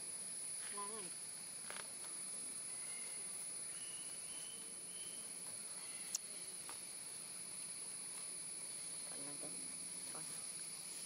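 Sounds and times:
insect drone: 0.0 - 11.0
faint high chirps: 2.3 - 6.7.

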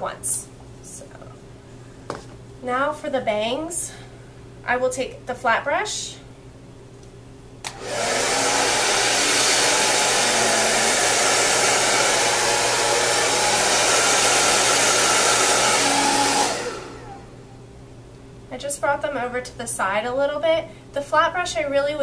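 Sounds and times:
hair dryer switch click: 7.6 - 7.9
hair dryer blowing: 7.6 - 17.4.

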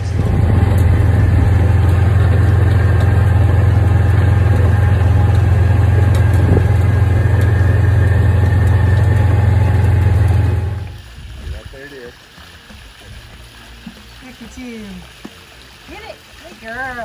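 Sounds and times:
utility vehicle engine droning: 0.0 - 11.0.

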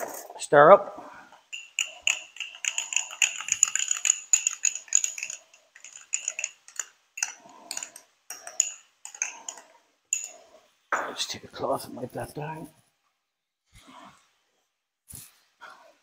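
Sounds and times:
teaspoon clinking against cup: 1.5 - 10.4.

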